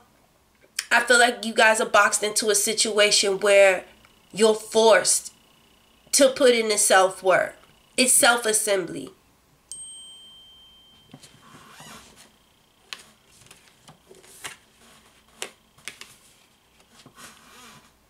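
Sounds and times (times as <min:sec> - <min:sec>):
short high ring: 0:09.7 - 0:12.2
cards tapping and sliding on cloth: 0:12.9 - 0:17.2.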